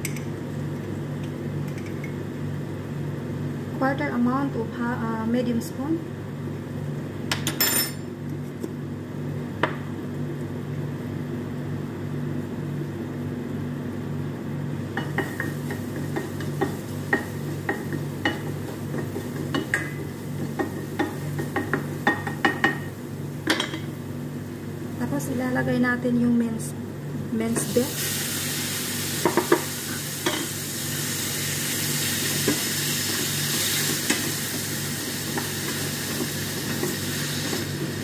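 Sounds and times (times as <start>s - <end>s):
faint frying sizzle: 9.8s - 38.0s.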